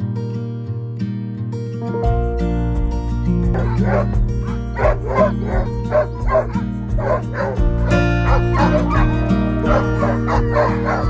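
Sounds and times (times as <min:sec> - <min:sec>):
background music: 0:01.8 - 0:11.0
sled dogs barking and yipping: 0:03.5 - 0:11.0.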